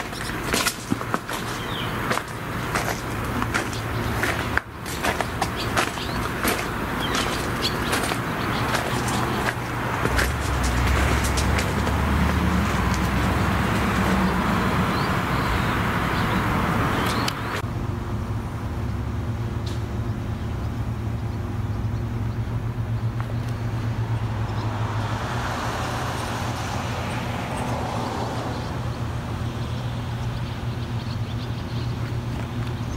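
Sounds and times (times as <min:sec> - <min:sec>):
diesel locomotive engine idling: 0:00.0 - 0:24.9.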